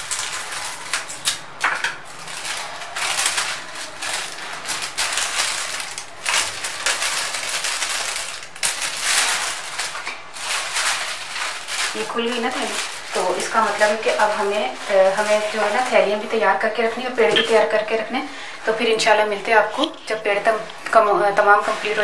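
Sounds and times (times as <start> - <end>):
scissors cutting plastic: 0.0 - 14.6
plastic bag crinkling: 0.0 - 22.0.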